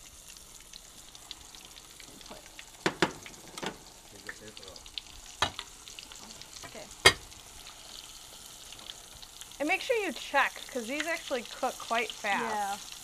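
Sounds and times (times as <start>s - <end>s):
food sizzling in hot oil: 0.0s - 13.0s
metal utensil knocking on pan: 2.8s - 3.8s.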